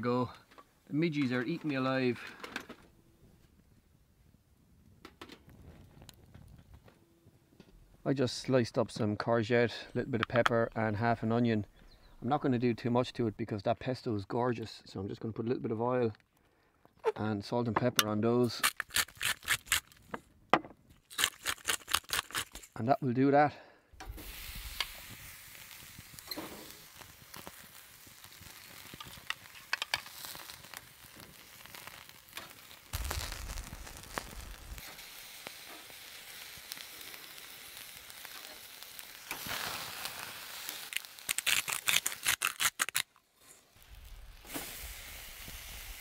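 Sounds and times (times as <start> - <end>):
wood fire crackling: 23.9 - 46.0
vegetables sizzling on a grill: 24.0 - 42.5, 43.4 - 46.0.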